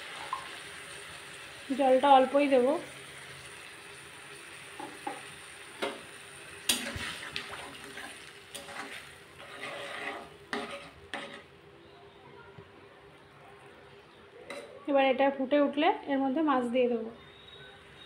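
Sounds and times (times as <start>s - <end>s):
soft sizzle: 0.0s - 15.8s
spatula scraping a pan: 6.8s - 11.5s.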